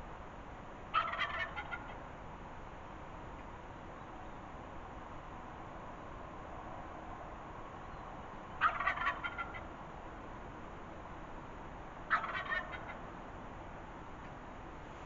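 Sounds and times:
turkey gobbling: 0.9s - 2.0s, 8.6s - 9.7s, 12.1s - 13.0s.

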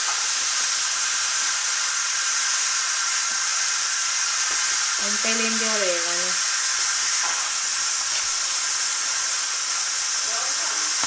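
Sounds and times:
vegetables sizzling in hot oil: 0.0s - 11.0s.

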